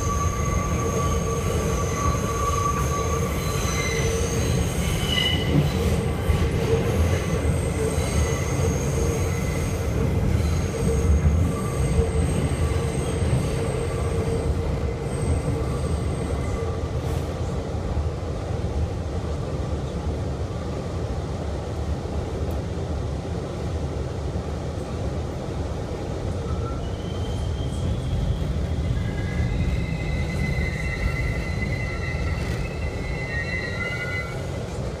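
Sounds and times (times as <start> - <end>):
subway wheels rumbling on rail: 0.0 - 35.0
metallic wheel squealing: 26.6 - 34.6.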